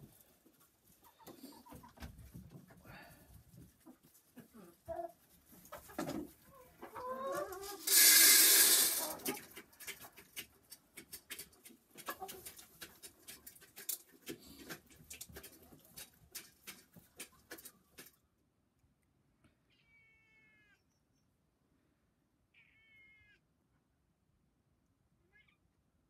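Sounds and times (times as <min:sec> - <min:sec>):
hens clucking: 0:00.0 - 0:02.8, 0:03.4 - 0:18.2.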